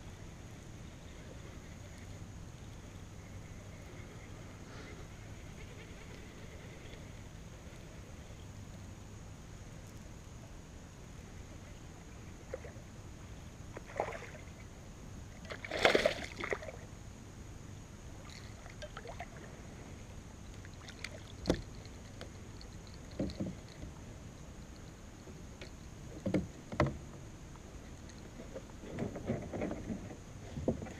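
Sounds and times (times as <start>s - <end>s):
fish splashing: 15.5s - 16.8s.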